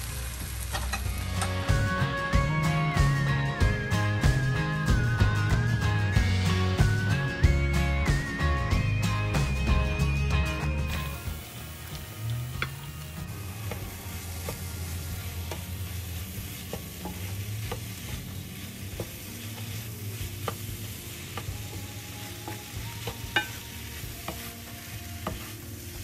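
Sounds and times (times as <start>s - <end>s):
faint sizzle: 0.0s - 5.3s, 6.2s - 26.0s
spatula knocking and scraping pan: 16.4s - 24.6s.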